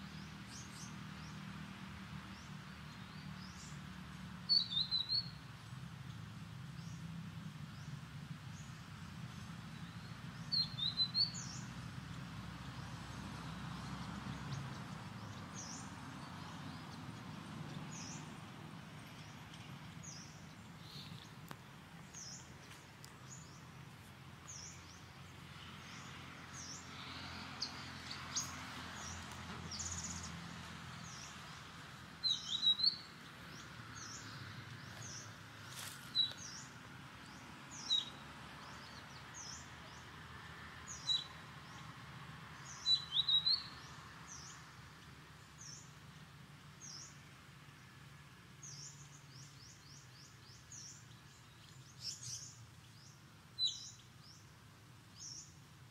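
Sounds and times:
small bird chirping: 4.5 - 5.4, 32.2 - 35.3.

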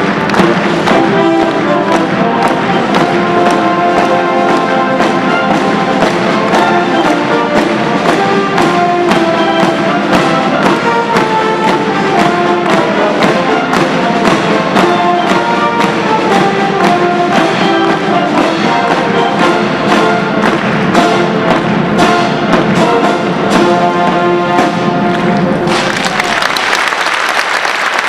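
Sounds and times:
crowd applauding: 0.0 - 7.6, 25.1 - 28.0
steady drumbeat: 0.0 - 26.4
military brass band playing: 0.0 - 26.5.

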